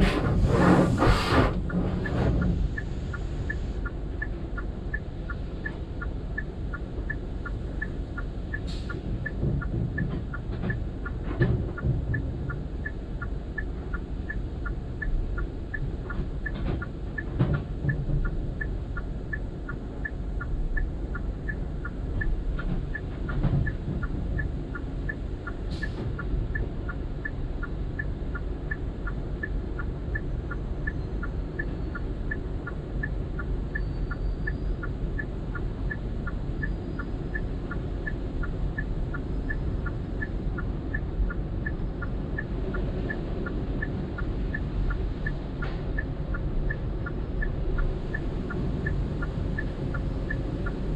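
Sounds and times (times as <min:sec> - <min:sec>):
car wash water spray and brushes: 0:00.0 - 0:03.8.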